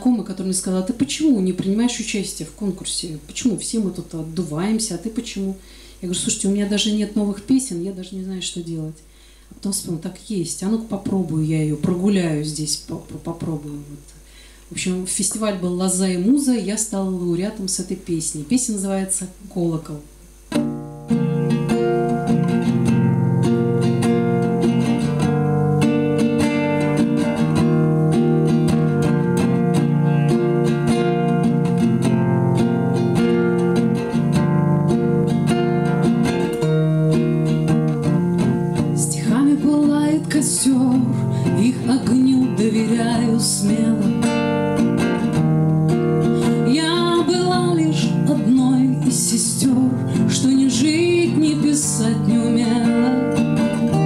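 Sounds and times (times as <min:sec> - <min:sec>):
acoustic guitar: 0:00.0 - 0:54.0
woman singing: 0:38.8 - 0:44.6, 0:46.4 - 0:54.0.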